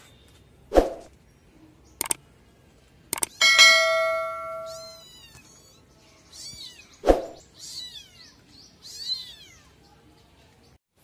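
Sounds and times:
kittens mewing: 0:04.6 - 0:07.0.

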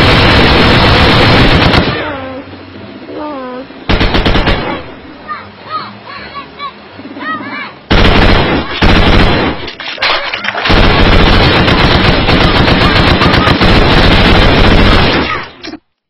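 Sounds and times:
machine-gun fire: 0:00.0 - 0:02.1, 0:03.9 - 0:04.9, 0:07.9 - 0:15.6.

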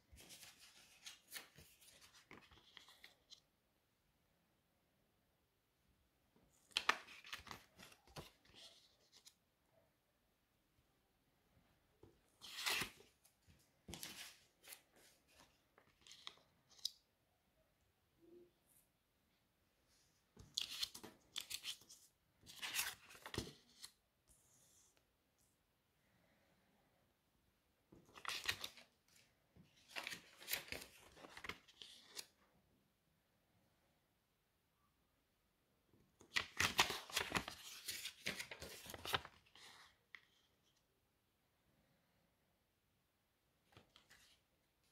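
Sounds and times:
banknotes rustling and crinkling: 0:00.0 - 0:03.5, 0:06.5 - 0:09.4, 0:12.0 - 0:17.0, 0:20.3 - 0:24.0, 0:28.0 - 0:32.4, 0:36.2 - 0:40.8, 0:43.7 - 0:44.9.

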